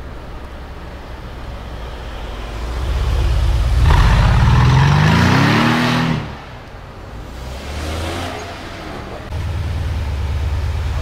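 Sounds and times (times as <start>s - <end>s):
car engine accelerating past: 1.5s - 6.5s.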